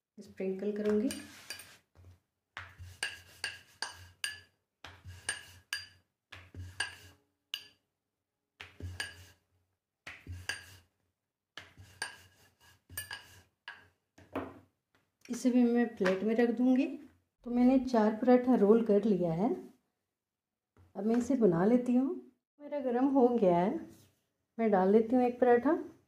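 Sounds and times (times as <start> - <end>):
rolling pin rolling dough: 0.6 - 7.8, 8.6 - 15.0.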